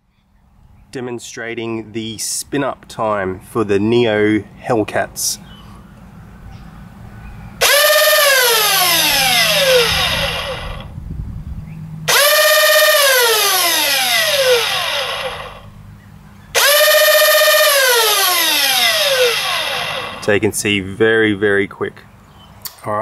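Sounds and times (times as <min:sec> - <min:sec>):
flywheel motors whining: 0:07.6 - 0:10.9, 0:12.1 - 0:15.7, 0:16.6 - 0:20.3.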